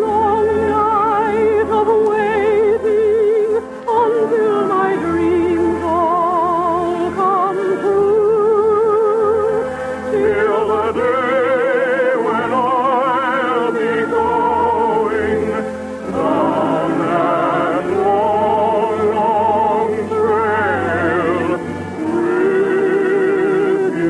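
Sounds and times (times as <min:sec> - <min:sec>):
orchestral music: 0:00.0 - 0:24.0
person singing with vibrato: 0:00.0 - 0:24.0.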